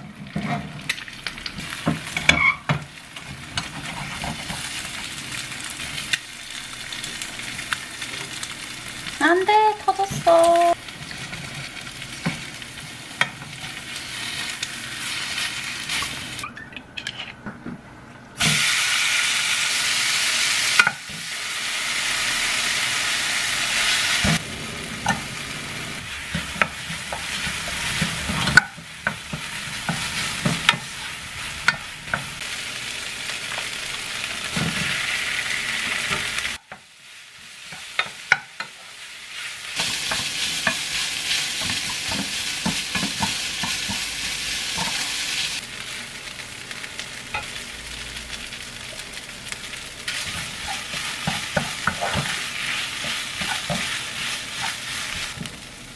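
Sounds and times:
food sizzling in a frying pan: 0.0 - 16.5, 18.4 - 55.9
spatula scraping and clicking on pan: 50.1 - 55.4.

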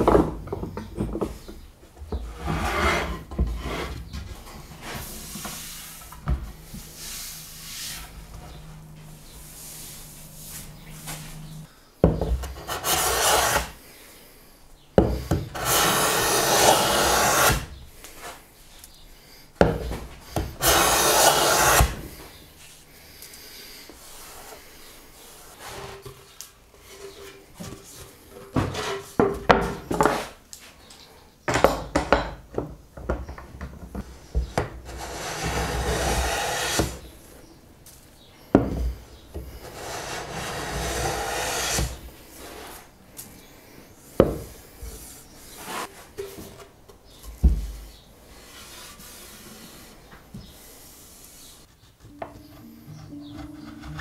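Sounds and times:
hand plane scraping strokes: 2.2 - 4.0, 4.6 - 11.6, 12.4 - 13.8, 15.5 - 18.4, 20.3 - 22.3, 34.8 - 37.1, 39.4 - 42.9, 48.3 - 54.0.

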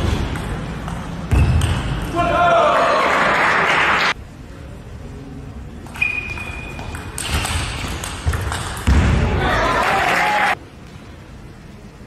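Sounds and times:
table tennis rally: 0.0 - 4.2, 5.8 - 10.6
crowd noise in a hall: 0.0 - 12.0.

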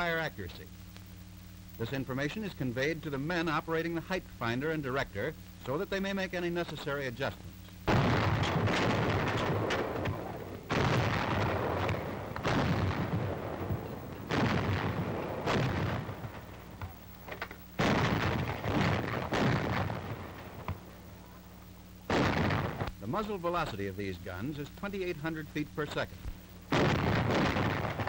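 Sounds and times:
heavy gun blasts: 7.9 - 17.0, 17.8 - 20.9, 22.1 - 22.9, 26.7 - 28.0.

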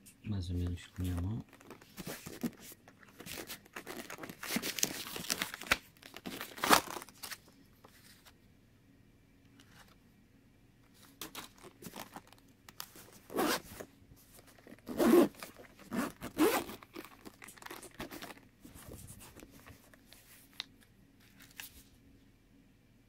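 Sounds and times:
zipper rasping open: 13.3 - 13.8, 14.6 - 17.0.

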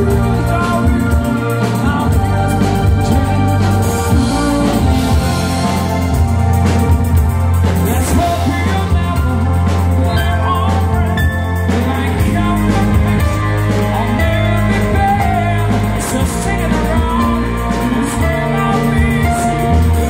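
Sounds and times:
person singing: 0.0 - 7.0, 7.6 - 20.0
deep bass notes: 0.0 - 20.0
live band music: 0.0 - 20.0.

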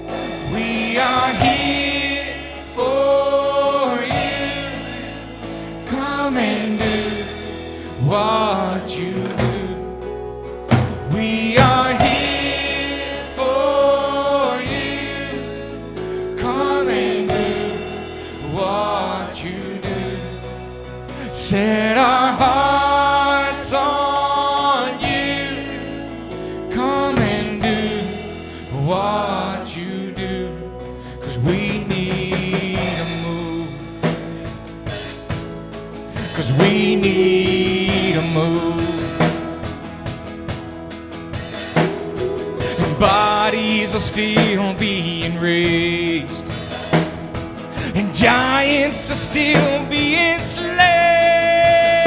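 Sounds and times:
voices singing: 0.0 - 10.0, 11.0 - 20.6, 21.4 - 30.4, 36.3 - 39.7, 41.7 - 45.6
drum kit beating: 0.0 - 30.3, 31.4 - 52.0
sustained chords: 0.0 - 31.1, 36.1 - 45.3
strummed acoustic guitar: 0.0 - 52.0
worship band playing: 0.0 - 52.0.

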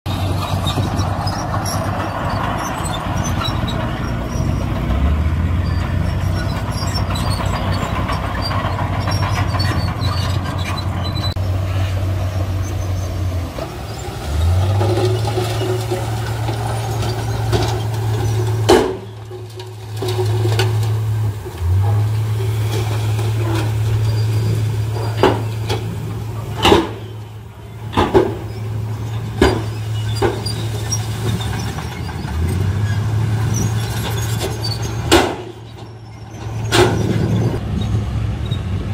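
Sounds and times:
diesel truck engines humming: 0.0 - 38.9.

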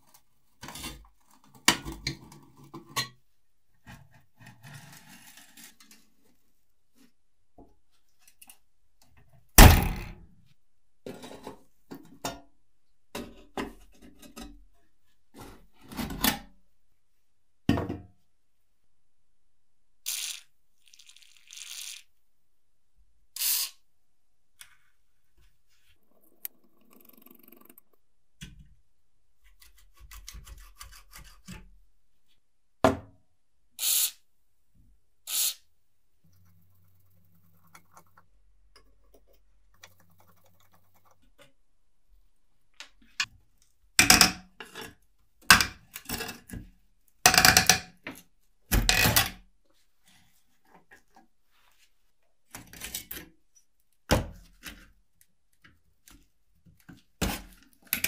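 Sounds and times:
aerosol spray hissing: 33.8 - 34.2, 35.3 - 35.6.

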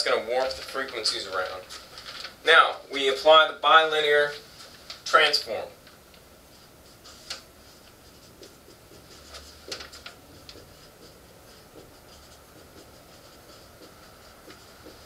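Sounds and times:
marker squeaking on whiteboard: 6.8 - 15.0.

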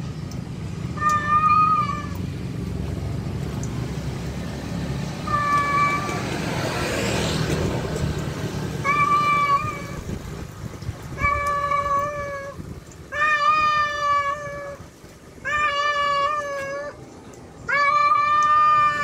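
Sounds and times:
cat meowing: 1.0 - 2.2, 5.2 - 6.2, 8.8 - 10.1, 11.1 - 14.8, 15.4 - 17.0, 17.7 - 19.0.

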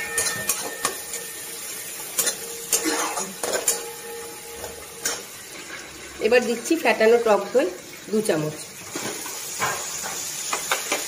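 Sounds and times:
spatula scraping a pan: 0.0 - 1.5
light sizzle: 0.0 - 11.0.

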